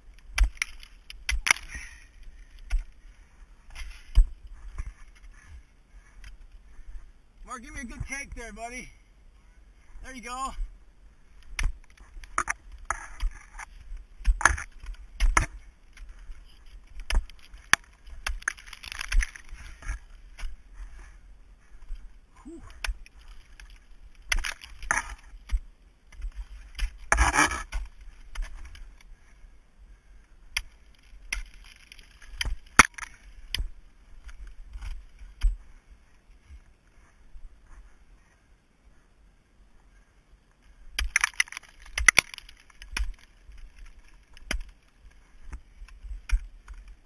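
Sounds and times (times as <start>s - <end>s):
ice axes striking ice: 30.6s - 33.7s, 41.0s - 44.7s.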